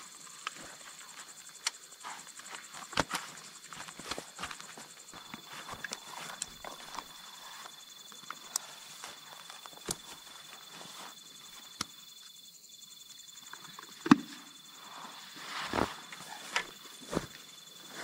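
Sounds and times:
footsteps: 2.0 - 7.8, 15.4 - 18.0
camping gear set down on grass: 2.0 - 11.8, 14.0 - 18.0.

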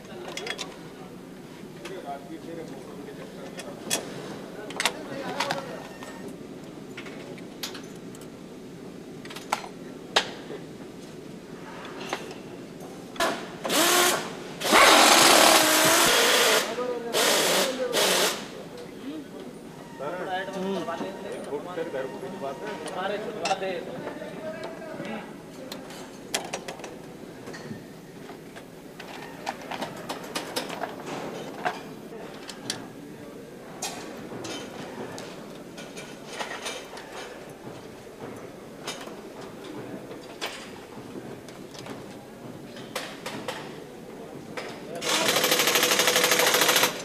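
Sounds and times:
low background noise: 0.0 - 47.0
tools and metal parts clattering: 0.2 - 0.8, 6.9 - 8.3, 28.5 - 32.8, 33.8 - 34.9, 35.7 - 37.8
power tool hissing and whirring: 13.7 - 18.5.

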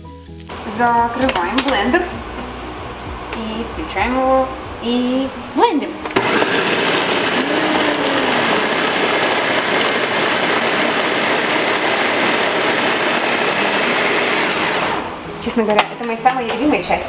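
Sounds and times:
blender motor whirring: 6.2 - 15.1.

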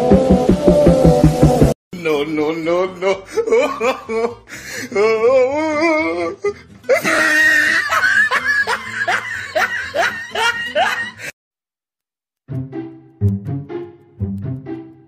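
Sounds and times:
music with plucked bass: 0.0 - 1.7, 12.5 - 14.8
person laughing hard: 3.2 - 5.0, 6.2 - 11.3.

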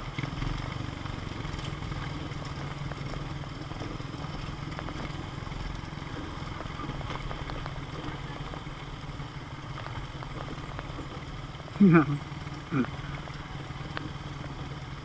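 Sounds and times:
gravel stones clicking and rattling: 0.0 - 15.0
motorcycle engine at low revs: 0.0 - 15.0.

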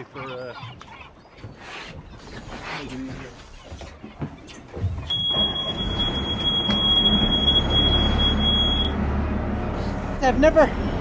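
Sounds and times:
high-pitched electronic beep: 5.1 - 9.0.

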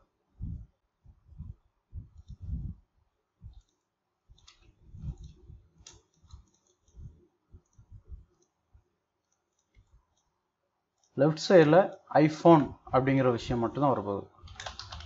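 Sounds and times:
soft low thumps: 0.4 - 2.8
computer mouse clicking: 3.5 - 8.6, 9.2 - 10.3, 14.4 - 15.0.

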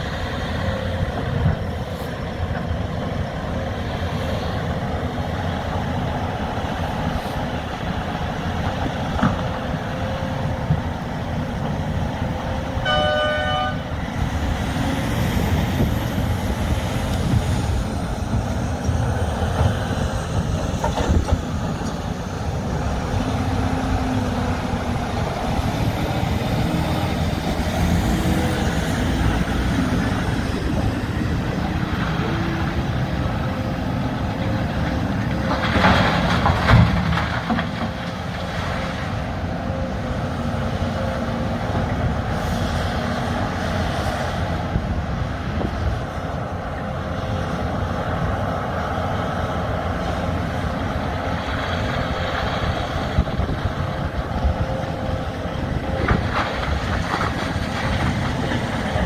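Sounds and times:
haul truck moving off: 0.0 - 59.0
large diesel engines running: 0.0 - 59.0
short horn toot: 12.8 - 13.9.

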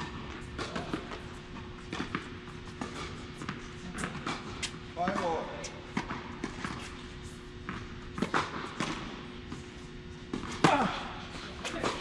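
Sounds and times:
tennis ball struck by rackets: 0.0 - 1.3, 1.9 - 6.9, 7.6 - 9.6
tennis ball bouncing on court: 0.0 - 7.0, 7.6 - 10.9.

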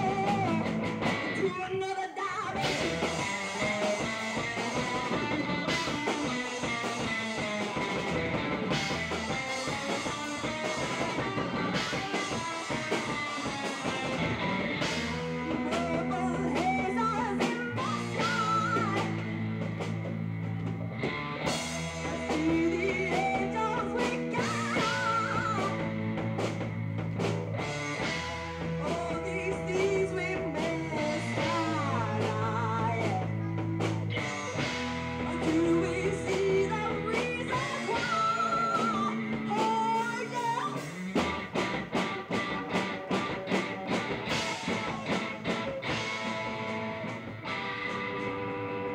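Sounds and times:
woman singing: 0.0 - 0.6, 1.4 - 2.6, 15.5 - 19.2, 22.0 - 25.9, 28.8 - 33.6, 35.2 - 40.9
bass guitar low notes: 0.0 - 1.5, 2.6 - 48.9
drum kit: 0.0 - 1.9, 2.5 - 48.9
electric guitars: 0.0 - 48.9.

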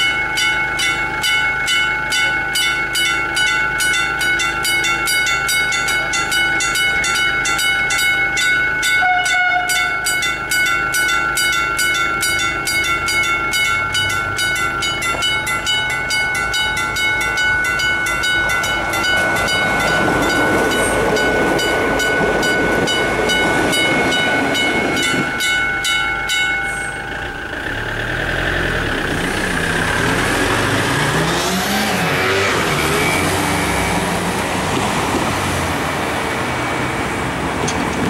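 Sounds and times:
level crossing bells ringing: 0.0 - 27.6
diesel railcar passing: 0.0 - 38.0
vehicles accelerating: 27.1 - 38.0.

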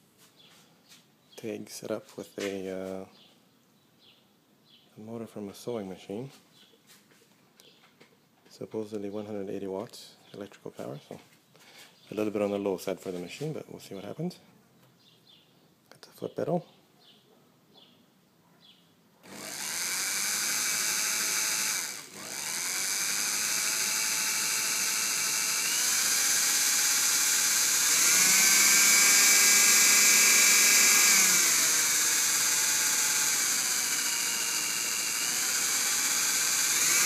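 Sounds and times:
lathe motor whine and hiss: 19.3 - 37.0.

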